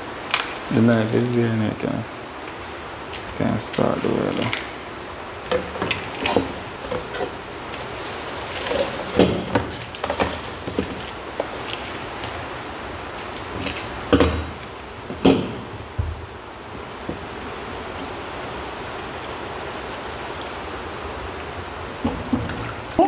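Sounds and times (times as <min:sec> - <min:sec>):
loud knocks: 0:14.1 - 0:16.3.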